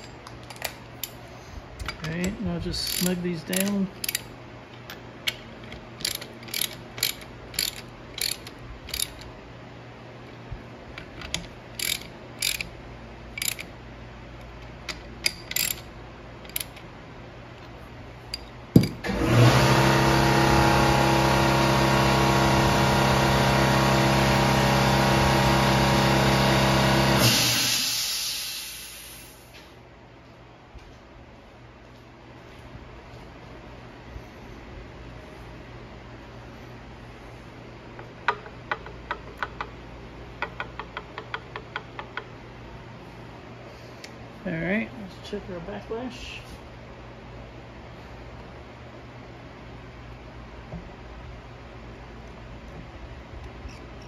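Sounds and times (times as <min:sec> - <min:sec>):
hand ratchet clicking: 0:01.8 - 0:04.3, 0:05.2 - 0:09.3, 0:11.0 - 0:12.7, 0:13.3 - 0:13.7, 0:14.9 - 0:16.8, 0:40.4 - 0:42.3
loud machine hum: 0:19.0 - 0:28.5.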